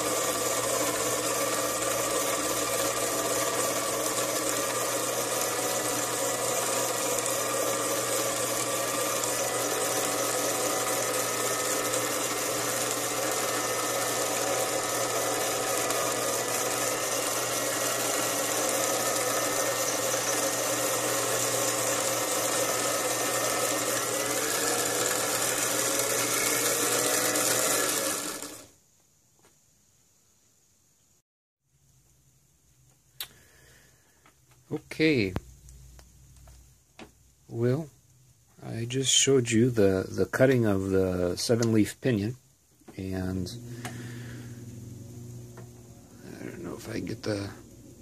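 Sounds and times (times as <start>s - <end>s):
cutter motor whining: 0.0s - 28.7s, 43.2s - 47.8s.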